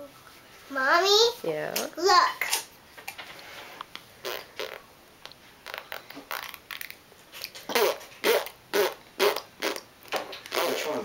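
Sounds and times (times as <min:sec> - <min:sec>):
child blowing raspberries: 0:04.2 - 0:04.8, 0:05.6 - 0:06.5, 0:07.7 - 0:11.0.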